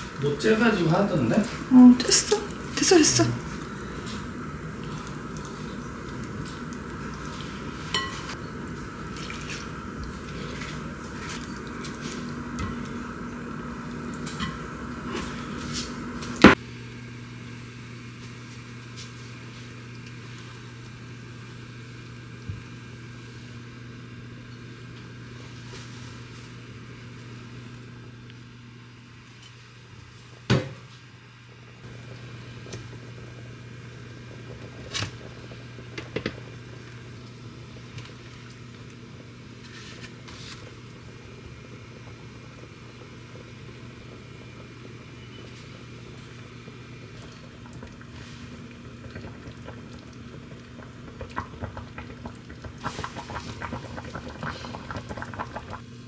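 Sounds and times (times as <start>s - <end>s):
water bubbling: 47.1s - 55.8s.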